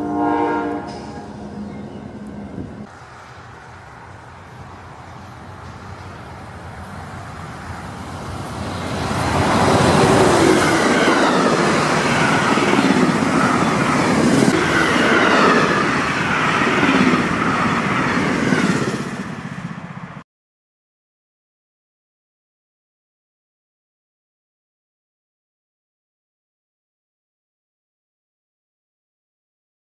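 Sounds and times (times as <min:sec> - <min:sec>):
train passing fast: 0:00.0 - 0:20.2.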